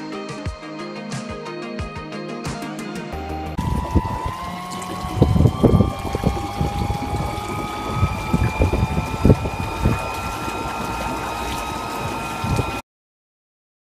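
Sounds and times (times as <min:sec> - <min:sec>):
electric boat motor whining: 0:03.6 - 0:12.8
water rushing and splashing: 0:03.6 - 0:12.8.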